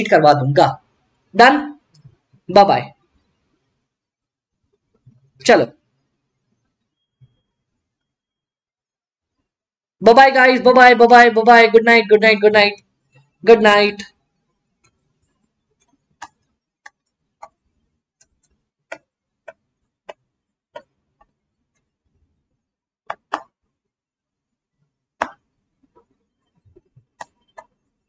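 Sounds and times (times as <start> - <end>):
stylus tapping on drawing tablet: 15.8 - 21.9, 23.0 - 23.7, 25.2 - 27.9.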